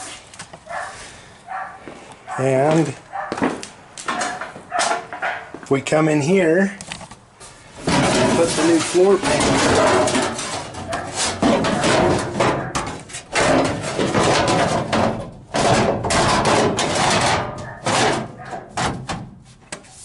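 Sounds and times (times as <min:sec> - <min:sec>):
sheet metal scraping and banging: 0:02.7 - 0:05.5, 0:07.7 - 0:19.4.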